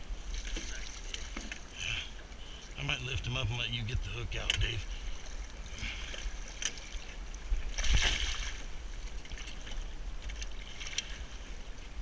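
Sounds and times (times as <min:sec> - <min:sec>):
water lapping around boat: 0:00.0 - 0:12.0
water splash: 0:04.4 - 0:11.3.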